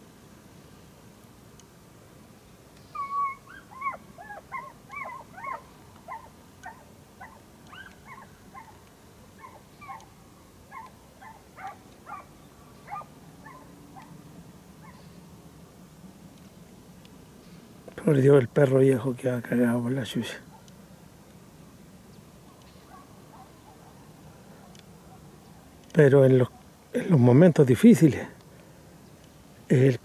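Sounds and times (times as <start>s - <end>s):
distant dogs yelping: 2.9s - 14.2s, 14.8s - 15.1s, 22.4s - 25.4s, 26.4s - 26.8s.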